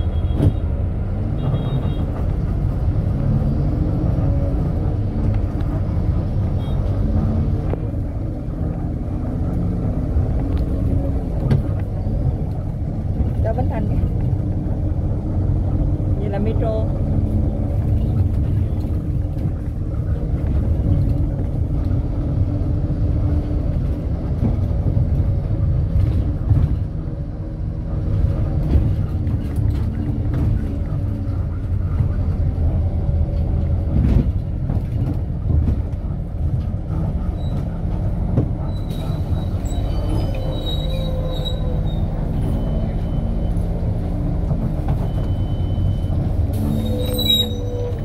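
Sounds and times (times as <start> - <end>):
bus engine and road rumble: 0.0 - 48.0
faint high squeal: 38.7 - 43.6, 45.0 - 48.0.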